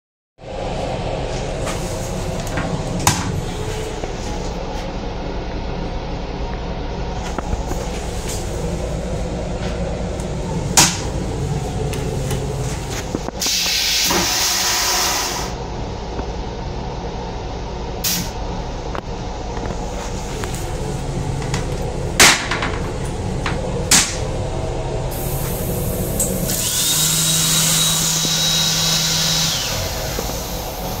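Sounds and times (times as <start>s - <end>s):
moving train rumble: 0.4s - 31.0s
toilet flushing: 13.4s - 15.6s.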